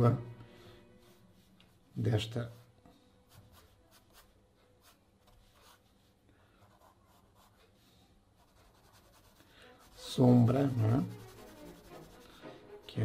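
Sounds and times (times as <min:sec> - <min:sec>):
pencil scratching on paper: 0:03.3 - 0:12.5.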